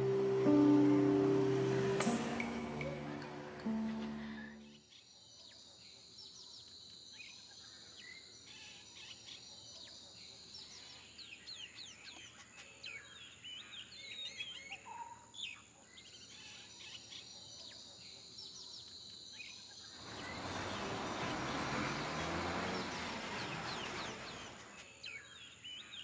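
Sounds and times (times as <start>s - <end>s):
birds chirping: 19.8s - 26.0s.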